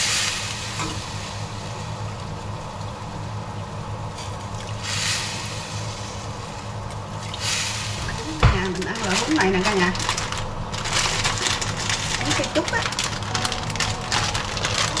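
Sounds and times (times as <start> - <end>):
broth simmering in pot: 0.0 - 10.8
stove hum: 0.0 - 15.0
broth splashing through strainer: 4.1 - 15.0.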